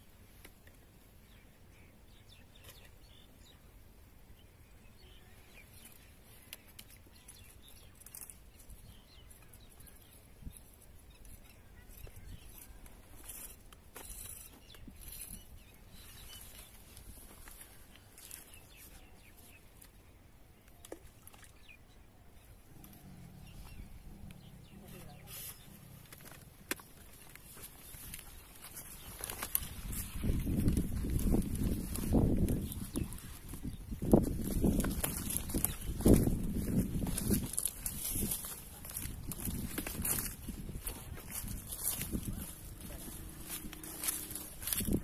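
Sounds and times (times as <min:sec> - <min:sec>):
faint high clicks and chirps: 0:02.2 - 0:03.5, 0:05.5 - 0:20.0.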